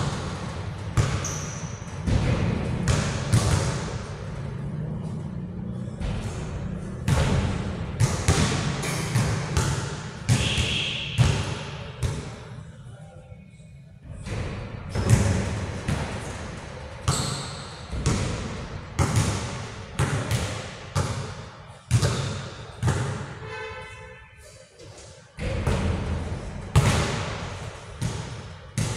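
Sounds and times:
basketball bouncing on gym floor: 0:00.0 - 0:04.1, 0:06.0 - 0:12.4, 0:14.2 - 0:23.3, 0:25.4 - 0:28.9.

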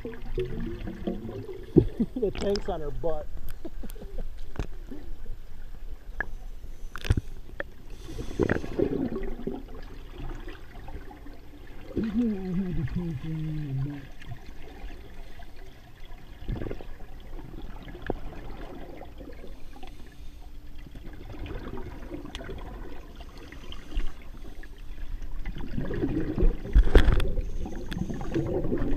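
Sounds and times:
underwater regulator bubbles: 0:00.0 - 0:05.2, 0:07.9 - 0:19.9, 0:20.8 - 0:28.9
water sloshing: 0:00.0 - 0:28.9
small clicks and knocks: 0:06.9 - 0:07.7.

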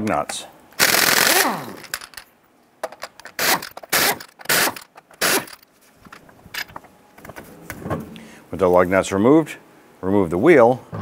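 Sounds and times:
air impact wrench spinning: 0:00.8 - 0:02.2, 0:03.2 - 0:05.6.

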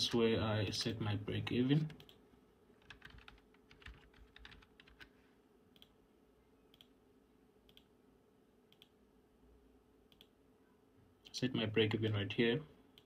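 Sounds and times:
computer keyboard typing: 0:02.8 - 0:05.1.

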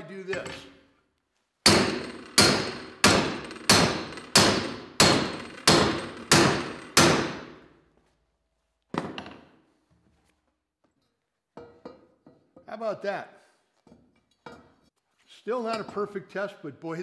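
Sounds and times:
hammer striking steel: 0:01.6 - 0:07.7.

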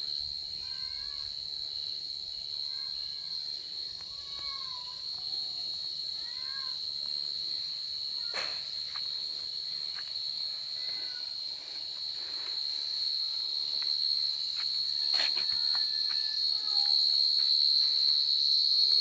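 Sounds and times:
night insects chorus: 0:00.0 - 0:19.0.

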